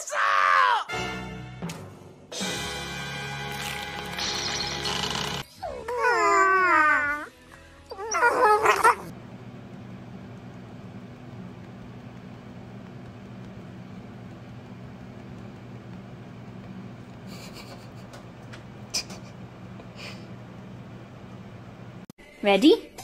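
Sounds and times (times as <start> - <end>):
dogs and man howling: 5.7 - 7.3, 7.9 - 9.1.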